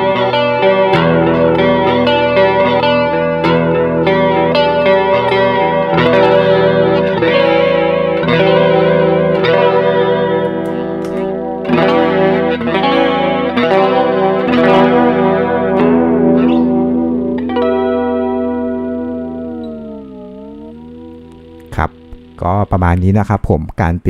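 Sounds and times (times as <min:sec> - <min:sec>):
electric guitar strumming chords: 0:00.0 - 0:23.2.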